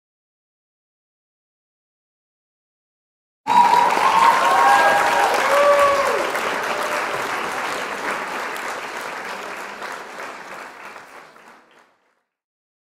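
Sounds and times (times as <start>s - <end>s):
crowd clapping: 3.5s - 12.4s.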